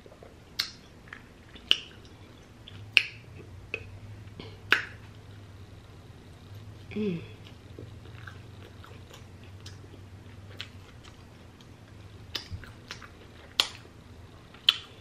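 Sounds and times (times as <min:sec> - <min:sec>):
chewing: 0:07.4 - 0:15.0.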